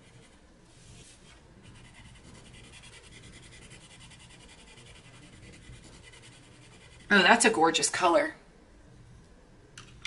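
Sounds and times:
colored pencil scratching on paper: 0.0 - 7.5.

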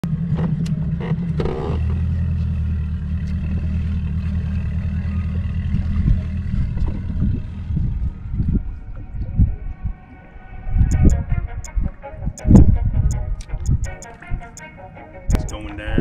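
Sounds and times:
boat motor running: 0.2 - 8.1.

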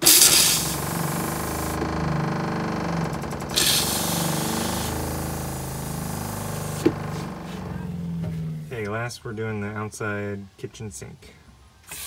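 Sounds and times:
toilet flushing: 0.0 - 8.7
water pump humming: 0.0 - 8.8.

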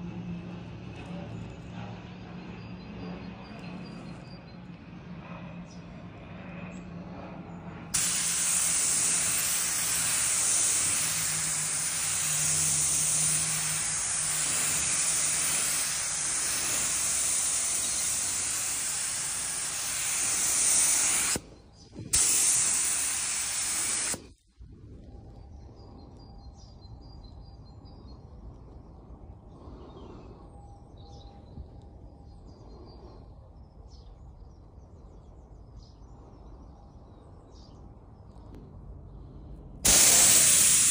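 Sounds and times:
paint spraying hiss: 8.0 - 21.4, 22.0 - 24.4, 39.8 - 40.9.

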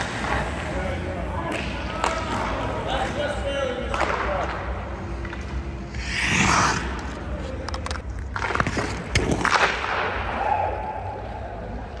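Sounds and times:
skate blades scraping ice: 5.5 - 10.2.

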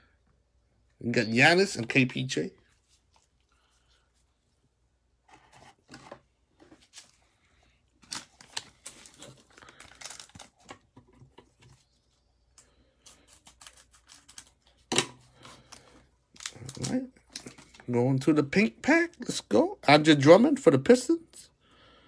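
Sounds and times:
foil wrapper crinkling: 8.0 - 10.8, 15.6 - 17.9.

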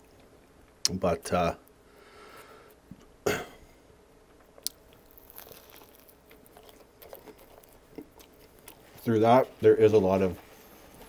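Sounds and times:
crackling chewing: 4.3 - 11.0
sandwich crunching: 4.5 - 9.6.

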